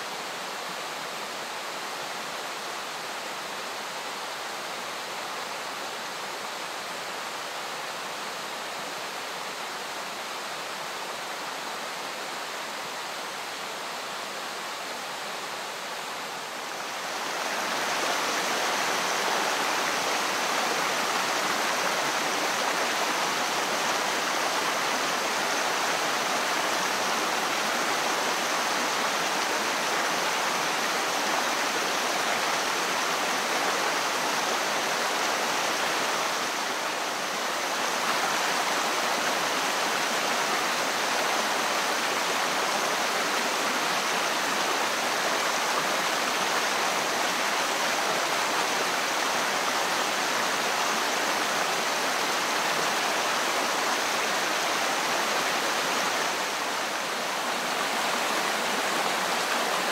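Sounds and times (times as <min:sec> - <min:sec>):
waterfall rushing into pool: 0:00.0 - 0:59.9.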